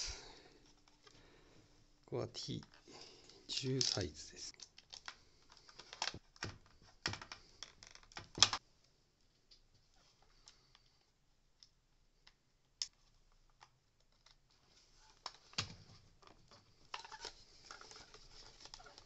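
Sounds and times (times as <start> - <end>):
plastic parts clicking and tapping: 2.6 - 8.6, 15.2 - 19.0.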